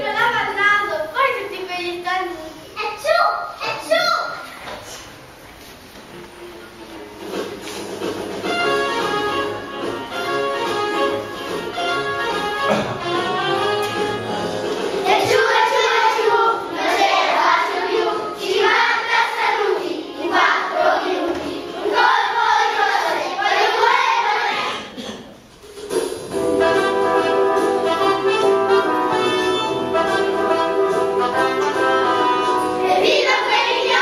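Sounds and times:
recorded backing music: 5.9s - 34.0s
children singing: 15.0s - 25.0s, 31.6s - 34.0s.

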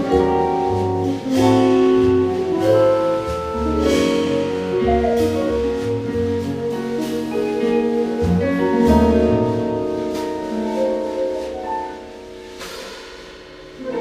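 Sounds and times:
small jazz group playing: 0.0s - 14.0s
cymbals struck: 12.4s - 14.0s.

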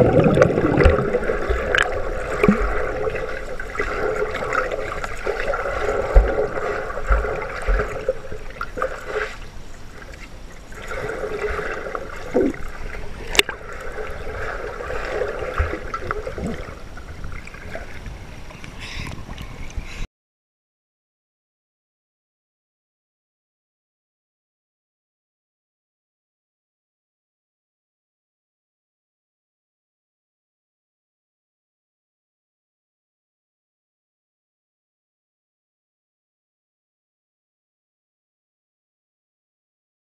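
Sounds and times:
underwater water sloshing: 0.0s - 20.0s.

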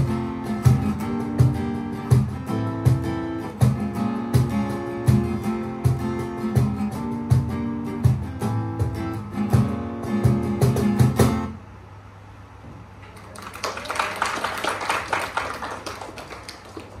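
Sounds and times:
cajon beats: 0.0s - 11.5s
strummed acoustic guitar: 0.0s - 11.6s
small audience clapping: 13.0s - 17.0s.

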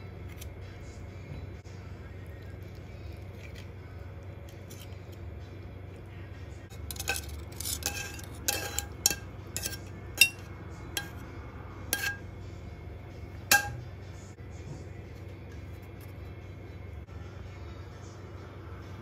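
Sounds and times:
fork clinking on ceramic plate: 6.7s - 11.2s, 12.0s - 12.2s, 13.5s - 13.8s.

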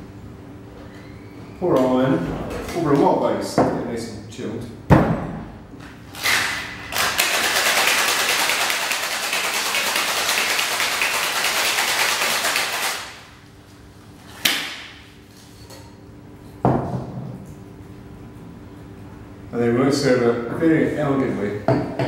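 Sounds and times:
ice rattling in cocktail shaker: 6.2s - 13.2s.

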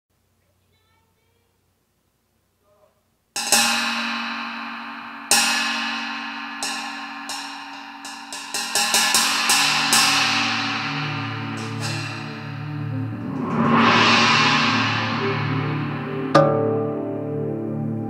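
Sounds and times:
cymbal crashes: 3.4s - 18.0s
low sustained tones: 3.8s - 18.0s.

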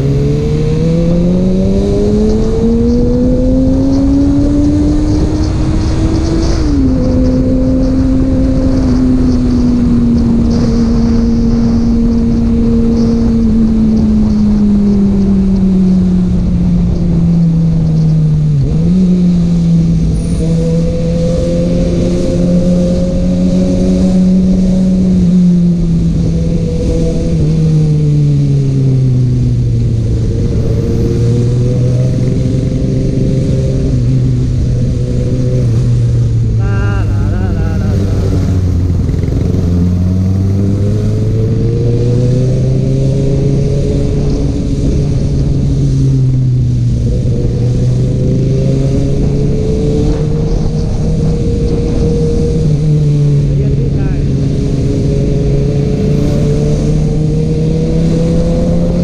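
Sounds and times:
steady rushing noise: 0.0s - 59.0s
motorcycle engine running: 32.0s - 41.5s.

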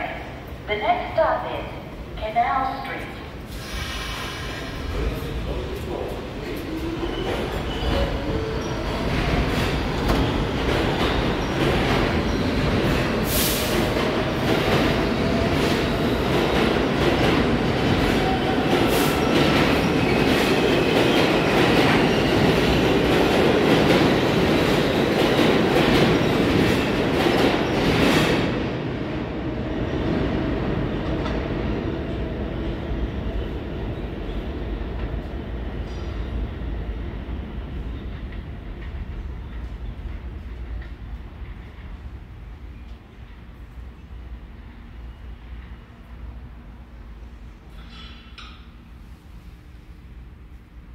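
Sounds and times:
train wheels rumbling on rail: 3.4s - 50.9s.

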